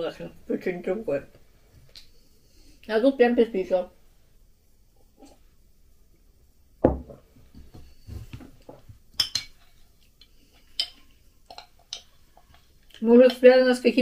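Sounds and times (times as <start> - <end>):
ceramic mug set down on table: 6.8 - 7.2
spoon clinking against glass: 9.2 - 9.6.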